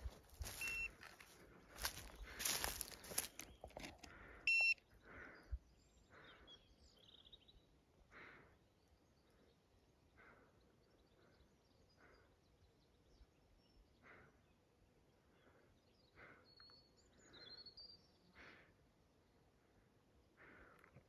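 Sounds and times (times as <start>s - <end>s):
faint outdoor ambience: 0.0s - 21.0s
short electronic beep: 0.6s - 0.9s, 4.5s - 4.8s.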